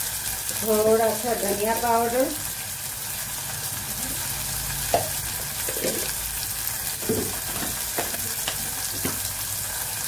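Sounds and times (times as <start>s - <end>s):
chillies sizzling in hot oil: 0.0s - 10.0s
oil popping: 4.9s - 9.3s.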